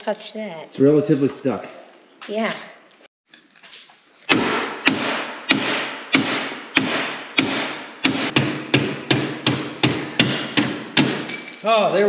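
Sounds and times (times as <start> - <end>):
hammer striking metal: 4.3 - 11.8.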